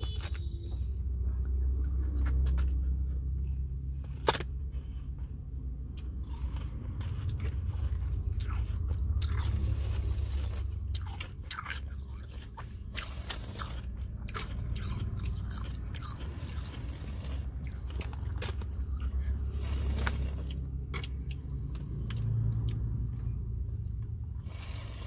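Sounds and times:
ice being chewed: 5.9s - 22.8s.

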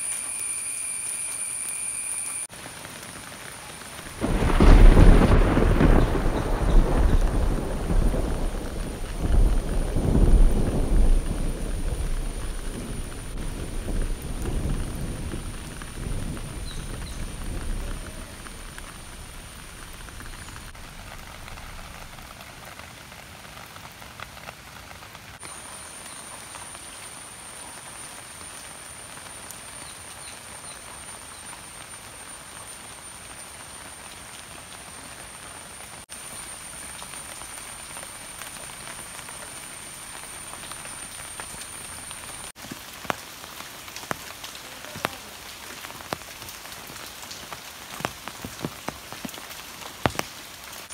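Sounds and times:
high-pitched whine: 0.0s - 2.5s
rain falling on grass and leaves: 0.0s - 50.9s
heavy drops ticking on leaves: 2.5s - 26.0s, 36.1s - 50.9s
low thunder rumble: 4.1s - 22.6s.

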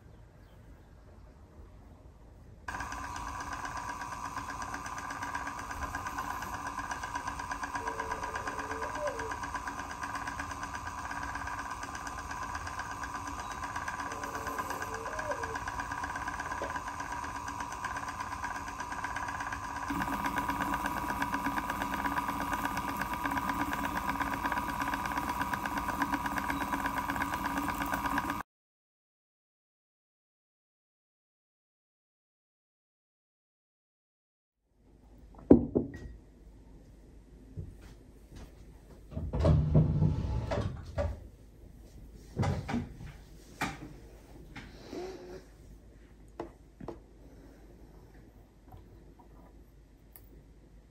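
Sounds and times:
electric spinning wheel whirring: 2.7s - 28.4s.

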